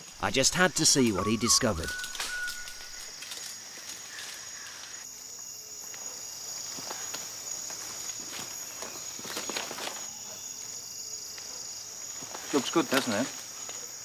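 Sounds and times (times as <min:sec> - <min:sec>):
insects buzzing drone: 0:00.0 - 0:14.0.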